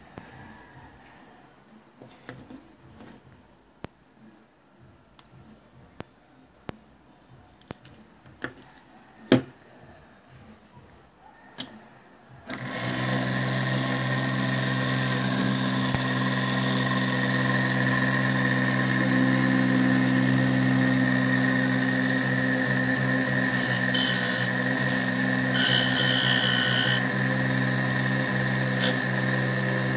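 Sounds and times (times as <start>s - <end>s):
electric motor humming and whining: 12.5s - 29.9s.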